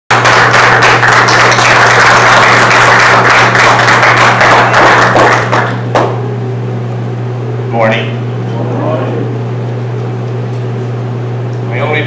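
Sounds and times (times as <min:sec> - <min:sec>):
crowd applauding: 0:00.1 - 0:06.1
low hum: 0:05.4 - 0:12.0.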